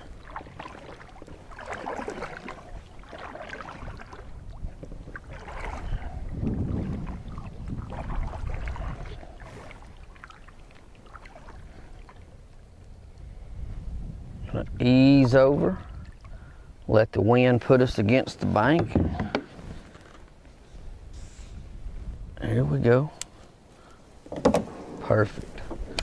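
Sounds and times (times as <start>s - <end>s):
kayak paddle splashing water: 0.0s - 12.5s.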